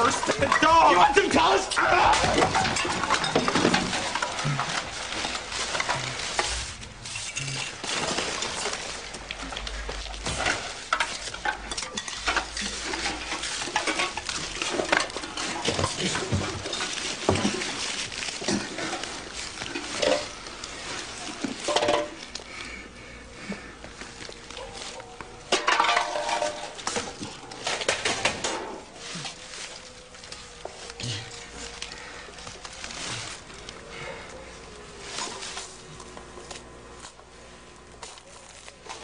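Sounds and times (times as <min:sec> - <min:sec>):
rustling background: 0:00.0 - 0:39.0
dishes and pans clattering: 0:02.2 - 0:06.0, 0:10.3 - 0:17.7, 0:19.7 - 0:20.4, 0:21.6 - 0:22.2, 0:25.5 - 0:28.8.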